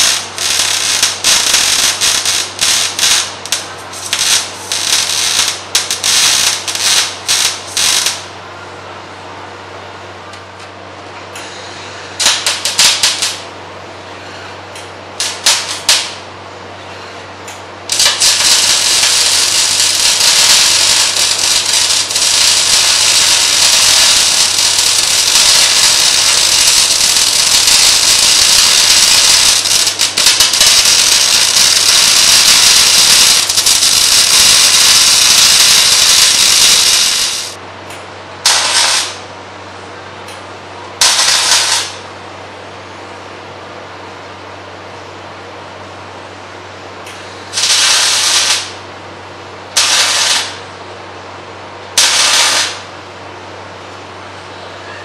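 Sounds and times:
welding arc crackling and hissing: 0.0 - 8.4, 11.5 - 13.5, 15.2 - 16.3, 17.5 - 37.6, 38.4 - 39.3, 41.0 - 42.0, 47.1 - 48.9, 49.7 - 50.7, 51.9 - 53.0
steady low hum: 0.0 - 55.0.

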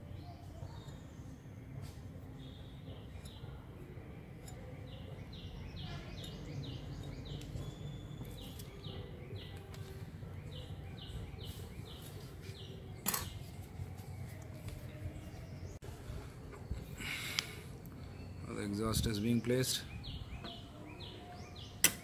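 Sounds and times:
small bird chirping: 0.0 - 15.8.

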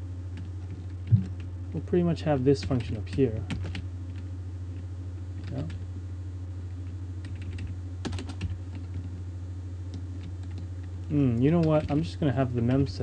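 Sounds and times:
low electrical hum: 0.0 - 13.0
typing on computer keyboard: 3.5 - 3.8, 7.2 - 9.1, 10.2 - 10.7.

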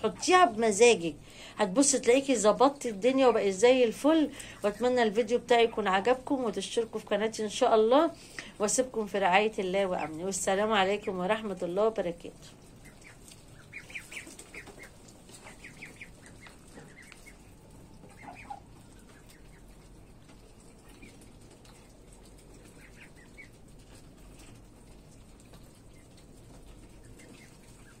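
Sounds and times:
ducklings peeping: 9.6 - 28.0.

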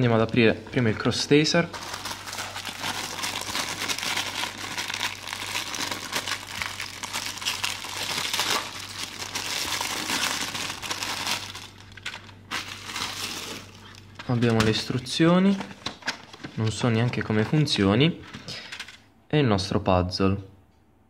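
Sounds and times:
plastic bag crinkling: 1.6 - 17.3.

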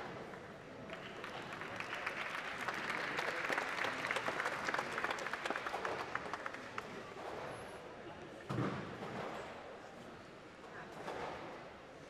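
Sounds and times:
audience applauding: 0.9 - 6.9.

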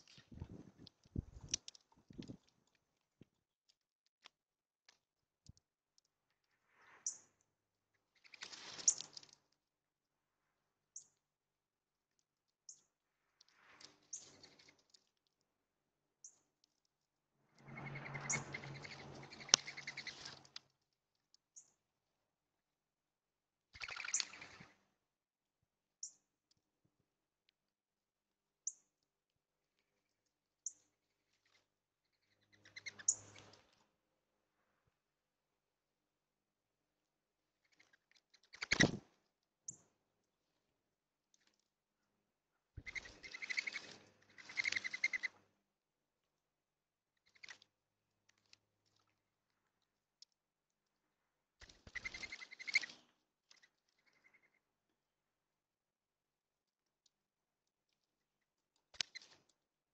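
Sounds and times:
wings fluttering: 0.0 - 2.7, 8.1 - 9.5, 13.4 - 15.2, 17.5 - 20.8, 23.7 - 24.8, 32.4 - 33.9, 37.6 - 39.3, 42.8 - 45.4, 47.2 - 47.7, 51.6 - 54.6, 58.9 - 59.5
faint clicks: 0.0 - 6.5, 16.2 - 21.7, 23.8 - 24.7, 58.7 - 59.6
small birds chirping: 7.0 - 9.5, 10.9 - 11.2, 12.1 - 15.4, 16.2 - 21.8, 23.7 - 24.8, 29.6 - 33.8, 37.4 - 39.0, 41.3 - 45.5, 47.1 - 47.7, 51.6 - 54.9, 58.4 - 59.6
dove wings whistling and flapping: 51.8 - 53.0.

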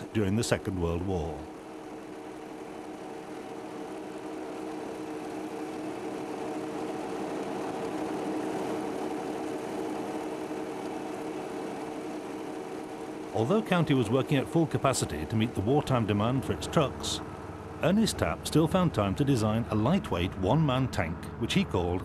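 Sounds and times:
truck engine running: 0.0 - 22.0.

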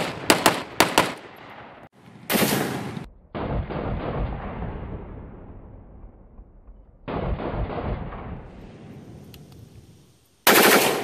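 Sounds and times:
muffled rapid gunfire: 0.0 - 1.2, 10.5 - 11.0
rifle shots: 0.0 - 4.5, 10.5 - 11.0.

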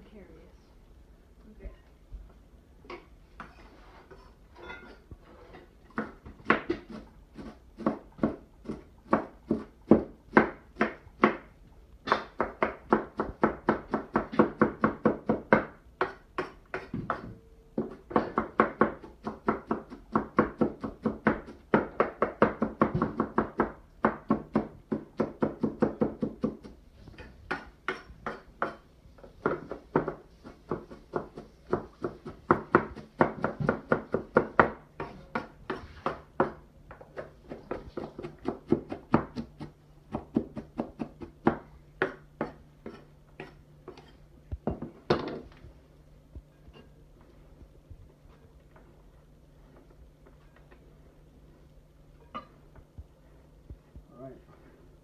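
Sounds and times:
knife chopping cabbage: 5.9 - 11.4, 12.1 - 28.8, 29.4 - 44.1.

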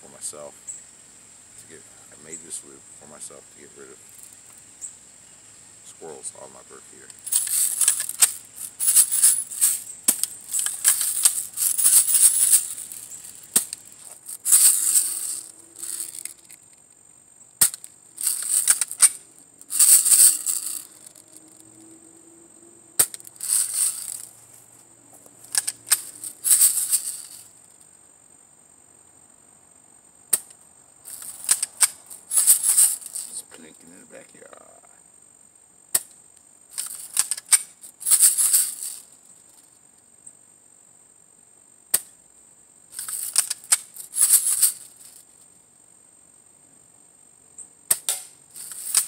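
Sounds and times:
shaken rattle bursts: 7.2 - 16.6, 17.6 - 21.2, 23.0 - 24.3, 25.5 - 27.5, 31.1 - 33.7, 36.8 - 39.1, 42.9 - 45.2, 48.5 - 49.0.

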